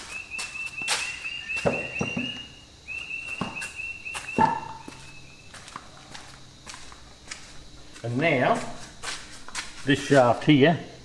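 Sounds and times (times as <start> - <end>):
bird chirping high notes: 0.0 - 5.5
footsteps: 0.0 - 10.5.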